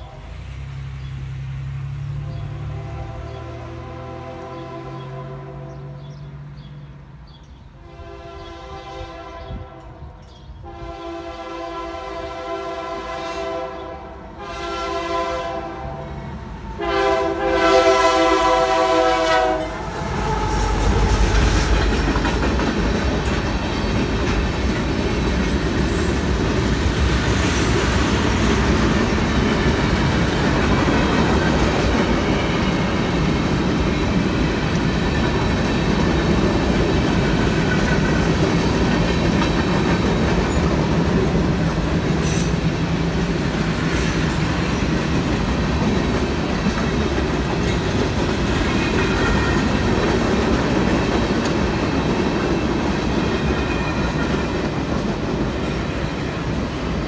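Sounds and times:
train air horn blasts: 2.4s - 6.2s, 7.8s - 21.7s, 48.7s - 50.0s
train wheels clattering on rails: 16.8s - 57.0s.

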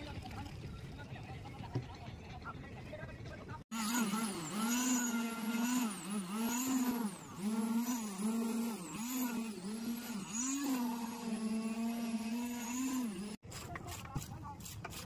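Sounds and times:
concrete vibrator humming: 3.7s - 13.4s.

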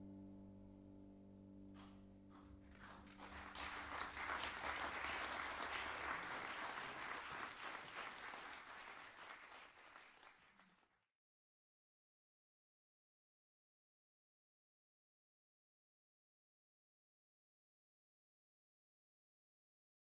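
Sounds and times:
audience applauding: 2.7s - 11.0s.

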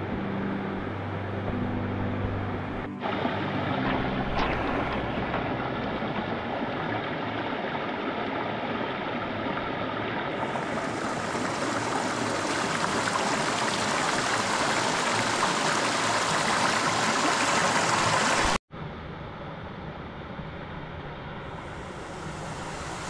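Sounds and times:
stream rushing over rocks: 3.0s - 18.6s.

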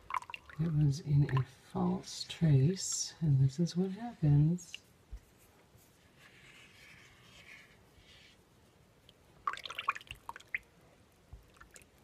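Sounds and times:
soap batter splashing and dripping: 0.0s - 1.5s, 9.1s - 10.7s.

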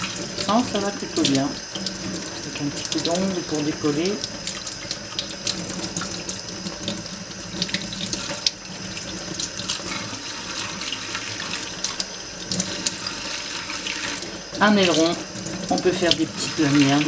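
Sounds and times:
tap water running into a sink: 0.0s - 17.0s.

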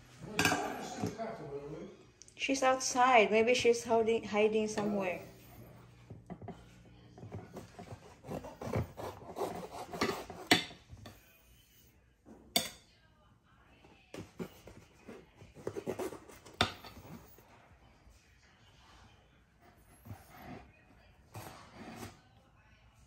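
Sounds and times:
knife sawing through cake: 7.2s - 11.3s, 14.4s - 17.4s, 19.6s - 22.3s.

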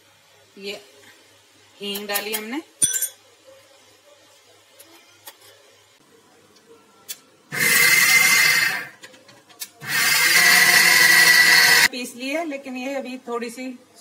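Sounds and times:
mixer grinder motor whine: 7.5s - 8.9s, 9.8s - 11.9s.

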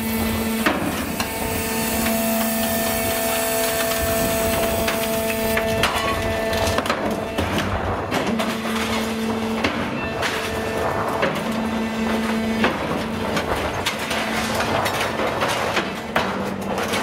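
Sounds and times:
hydraulic drone: 0.0s - 15.4s
metal scrap clanking: 4.8s - 17.0s.

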